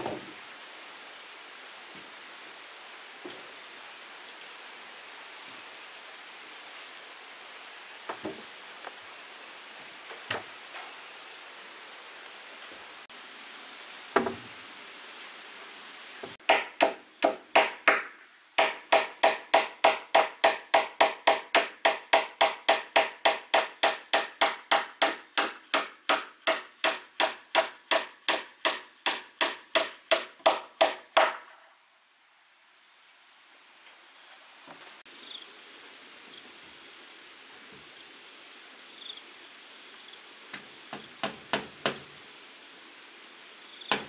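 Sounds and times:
hand tool striking wood: 16.4 - 31.5, 40.9 - 42.0.

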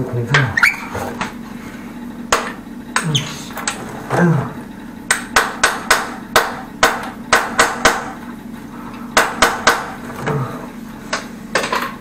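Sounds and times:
hammer striking tiled wall: 5.1 - 8.2, 9.2 - 10.0.

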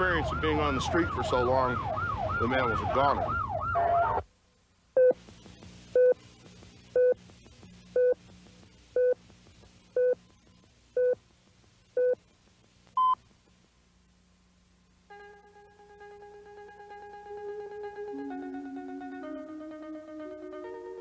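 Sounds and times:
heart monitor beeping: 5.0 - 5.2, 6.0 - 6.2, 7.0 - 7.2, 8.0 - 8.2, 9.0 - 9.2, 10.0 - 10.2, 12.0 - 12.2, 13.0 - 13.2.

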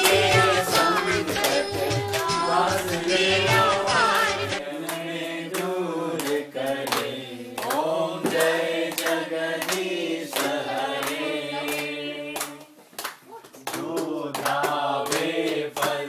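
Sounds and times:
group singing a hymn: 0.0 - 12.8, 13.7 - 16.0
hands clapping in time: 0.0 - 16.0.

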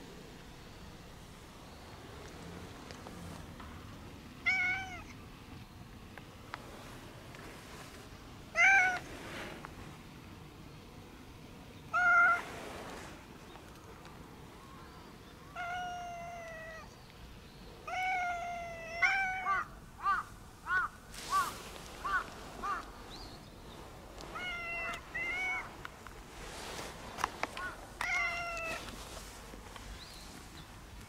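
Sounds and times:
cat meowing: 4.5 - 5.1, 15.5 - 16.9, 17.9 - 19.7, 24.3 - 25.8, 27.6 - 28.9.

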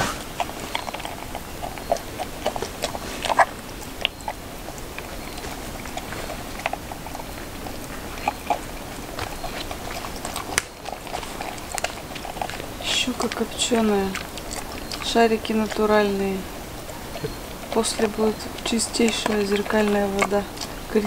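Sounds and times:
chewing and biting crunches: 0.0 - 21.0
steady background hiss: 0.0 - 21.0.

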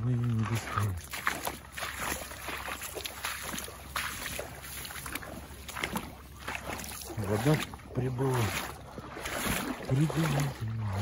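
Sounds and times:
wading through shallow water: 0.0 - 11.0.

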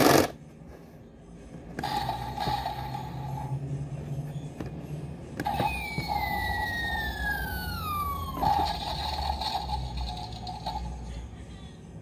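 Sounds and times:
electronic siren-like tone: 5.5 - 8.8.

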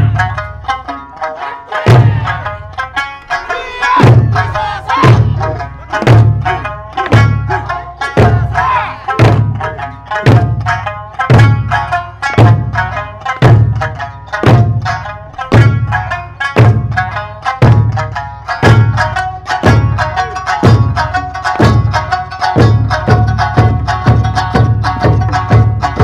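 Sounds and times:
folk music: 0.0 - 26.0
barrel drums booming: 1.7 - 2.6, 3.2 - 7.6, 12.4 - 18.0.

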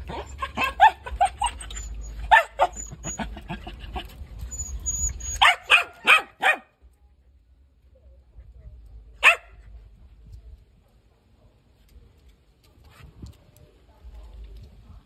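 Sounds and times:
dog barking: 0.0 - 1.6, 2.3 - 2.8, 5.4 - 6.7, 9.2 - 9.6.

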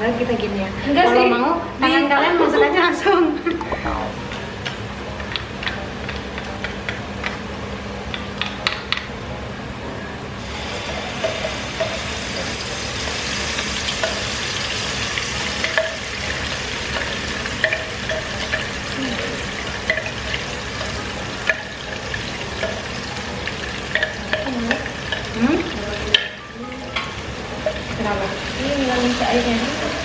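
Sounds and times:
paste sizzling in hot oil: 10.4 - 26.2.

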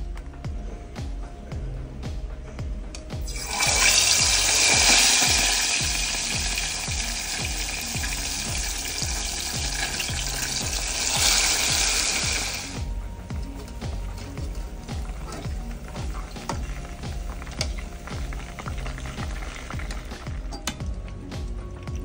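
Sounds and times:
background music with low beat: 0.0 - 22.0
oil sizzling deep-frying: 3.2 - 22.0.

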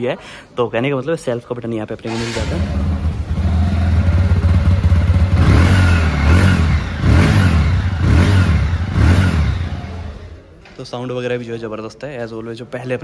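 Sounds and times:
motorcycle engine idling and revving: 2.1 - 10.4.

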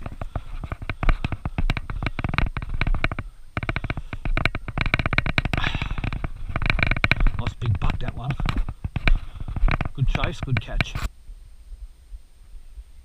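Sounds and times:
footsteps on grass and dirt: 0.0 - 3.2, 5.6 - 11.1
camera jostling: 0.0 - 11.1.

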